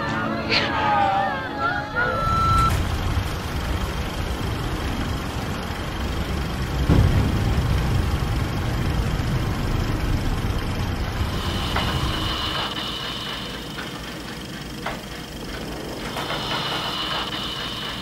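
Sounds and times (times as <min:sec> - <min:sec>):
steady low rumbling: 0:01.9 - 0:18.0
short beep: 0:02.2 - 0:02.8
deep boom: 0:06.7 - 0:11.4.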